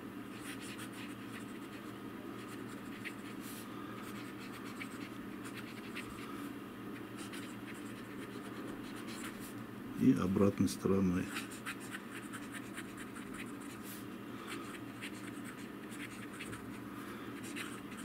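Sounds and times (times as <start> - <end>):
fountain pen scratching paper: 0.4 - 3.4, 4.0 - 6.2, 7.2 - 9.5, 11.2 - 13.9, 14.6 - 16.8, 17.4 - 18.0.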